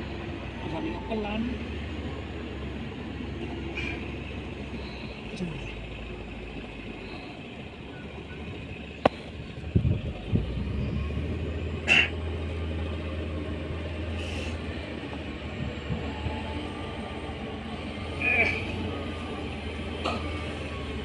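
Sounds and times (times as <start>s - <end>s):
excavator engine drone: 0.0s - 21.0s.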